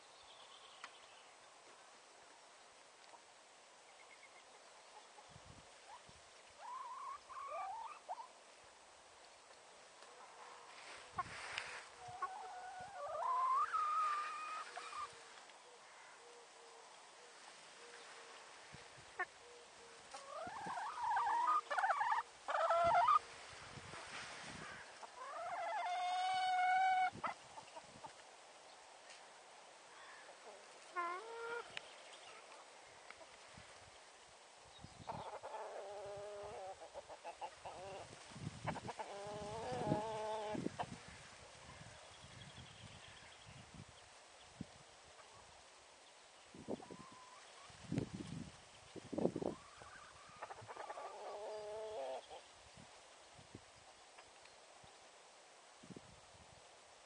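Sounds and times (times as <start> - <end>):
faint outdoor hiss: 0.0 - 57.0
hens calling: 6.6 - 8.3, 10.7 - 16.4, 19.1 - 28.2, 30.0 - 32.7, 35.1 - 41.0, 49.4 - 52.4.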